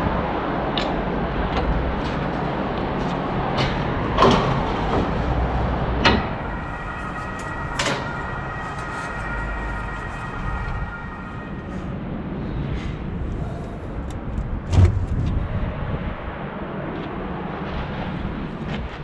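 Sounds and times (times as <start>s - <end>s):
faint steady whine: 0.0s - 14.6s
low rumble: 0.0s - 19.0s.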